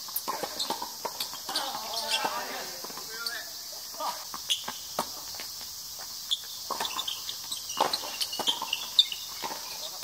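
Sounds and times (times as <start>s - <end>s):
steady high hiss: 0.0s - 10.0s
rackets hitting tennis ball: 0.2s - 5.6s, 6.6s - 10.0s
ball bouncing on hard court: 6.6s - 10.0s.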